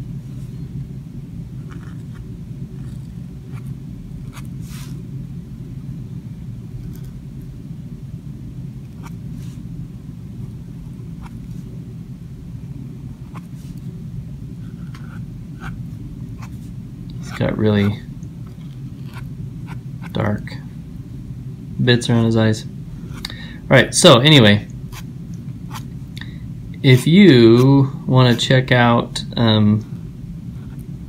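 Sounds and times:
low room hum: 0.0s - 31.0s
pen nib scratching paper: 1.7s - 2.2s.

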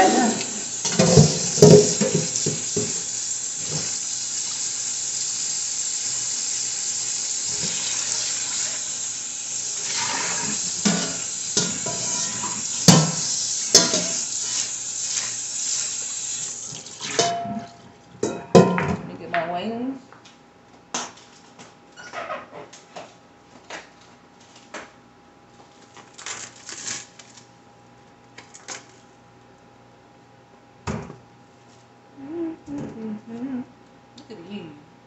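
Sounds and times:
faucet running into sink: 0.4s - 17.3s
pan clattering: 0.9s - 3.0s, 10.4s - 14.3s, 17.1s - 19.0s.

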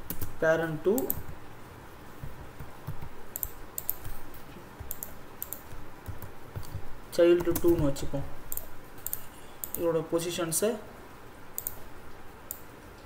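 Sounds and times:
keyboard typing clicks: 1.0s - 1.4s, 2.2s - 4.2s, 4.8s - 7.9s, 8.5s - 9.8s, 11.6s - 11.8s.

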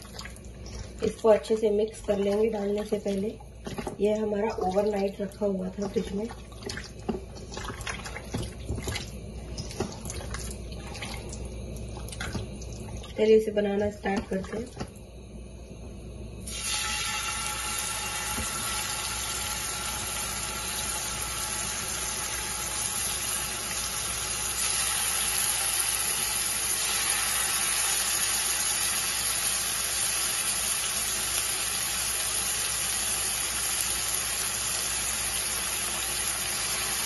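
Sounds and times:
chicken sizzling in hot oil: 16.5s - 37.0s.

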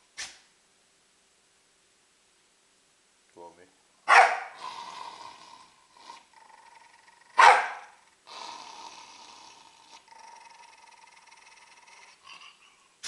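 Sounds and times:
small dog barking: 4.1s - 4.6s, 7.4s - 8.0s.

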